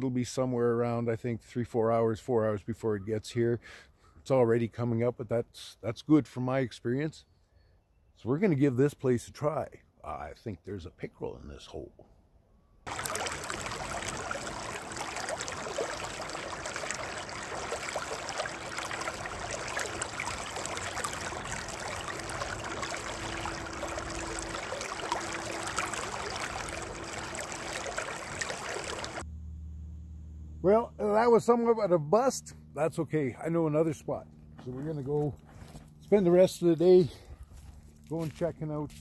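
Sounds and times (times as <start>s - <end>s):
river rushing: 12.9s - 29.2s.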